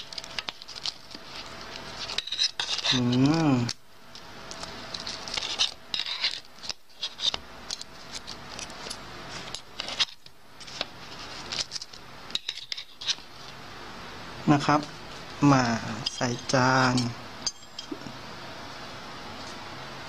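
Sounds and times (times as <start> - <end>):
fork scraping a metal tray: 2.0 - 3.4, 5.3 - 7.4.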